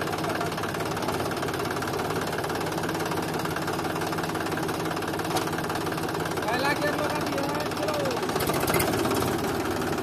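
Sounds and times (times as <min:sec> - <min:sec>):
tractor diesel engine running: 0:00.0 - 0:10.0.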